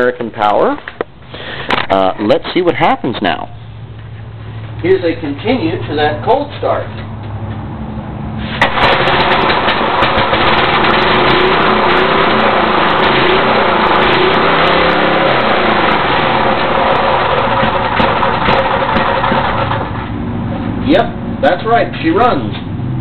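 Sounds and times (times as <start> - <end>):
small engine running fast: 8.6 - 20.0
engine pops: 8.6 - 20.1.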